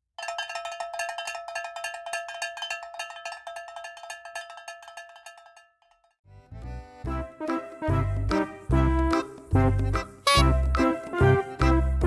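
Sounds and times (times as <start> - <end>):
metal percussion roll: 0.2 - 5.8.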